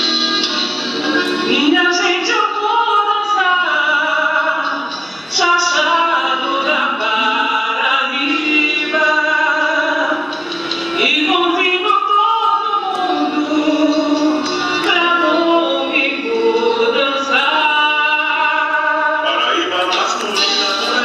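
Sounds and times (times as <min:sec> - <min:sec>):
dance song with singing: 0:00.0 - 0:21.0.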